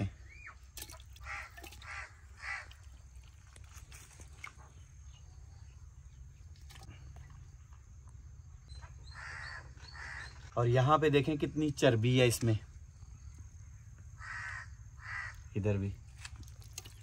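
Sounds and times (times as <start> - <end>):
crow cawing: 1.2 - 2.8, 9.0 - 10.4, 14.2 - 15.5.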